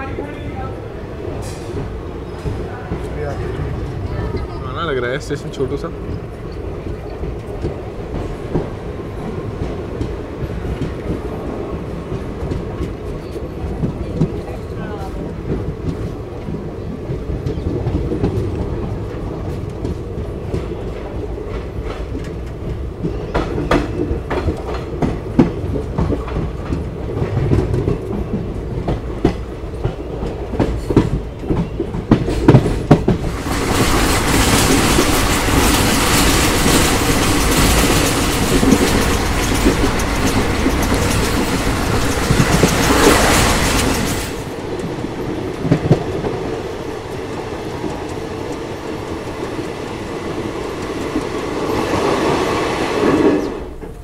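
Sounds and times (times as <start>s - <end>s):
low train rumble: 0.0s - 54.0s
train wheels clicking over rail joints: 1.2s - 54.0s.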